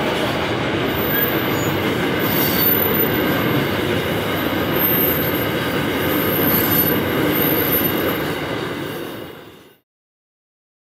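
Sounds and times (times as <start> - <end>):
train wheels rumbling on track: 0.0 - 9.8
high wheel squeal: 0.9 - 3.6, 4.4 - 8.3.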